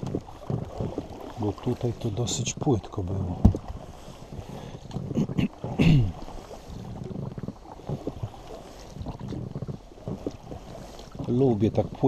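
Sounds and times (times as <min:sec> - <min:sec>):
knocks against hull: 0:00.0 - 0:01.4, 0:02.2 - 0:03.8, 0:07.0 - 0:12.0
inflatable boat creaking squeaks: 0:00.0 - 0:12.0
water against hull: 0:00.0 - 0:12.0.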